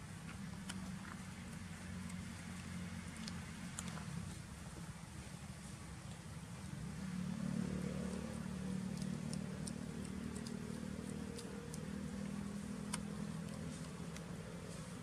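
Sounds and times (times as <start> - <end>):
low engine drone: 6.4 - 15.0.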